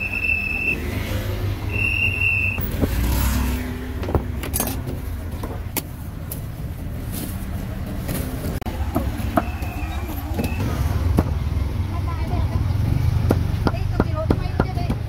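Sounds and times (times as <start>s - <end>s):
shrill whistle tone: 0.0s - 0.8s, 1.7s - 2.7s, 9.4s - 10.8s
vehicle passing: 0.0s - 5.6s, 6.7s - 14.3s.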